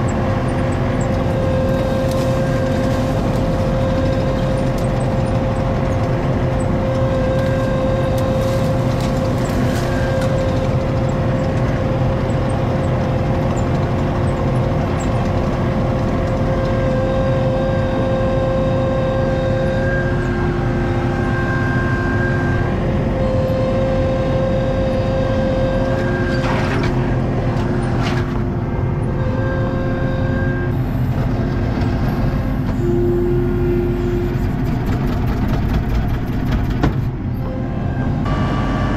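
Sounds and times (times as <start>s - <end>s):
diesel engine running: 0.0s - 38.9s
whine changing pitch: 16.4s - 34.6s.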